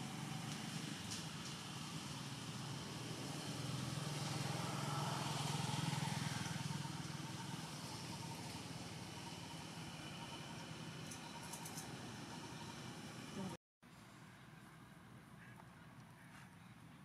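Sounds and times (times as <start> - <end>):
motorbike passing by: 0.0 - 13.6.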